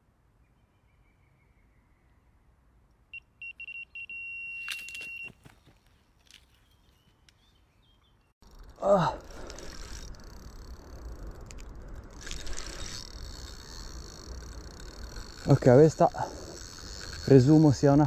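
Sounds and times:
bite alarm beeps: 3.1s - 5.4s
rod and reel noise: 8.4s - 18.0s.

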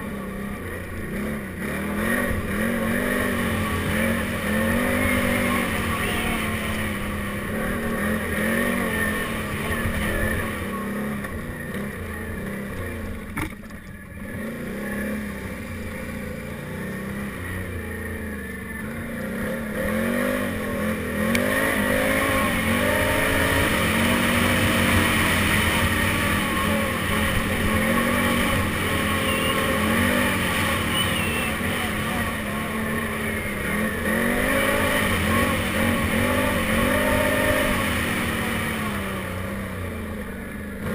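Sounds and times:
atv engine revving: 0.0s - 40.9s.

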